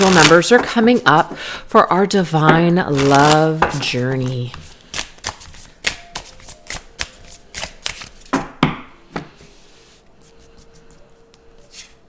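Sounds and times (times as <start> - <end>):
cards being shuffled: 0.0 - 0.6, 2.8 - 8.3.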